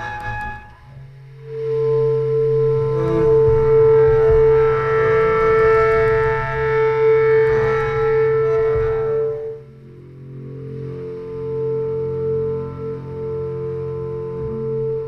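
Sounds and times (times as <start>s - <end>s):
film music drone: 0.0s - 15.0s.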